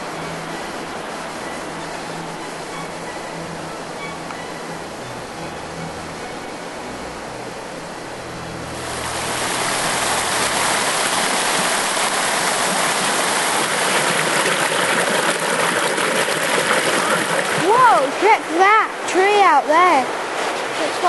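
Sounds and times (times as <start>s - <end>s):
waterfall rushing over rock: 8.8s - 21.0s.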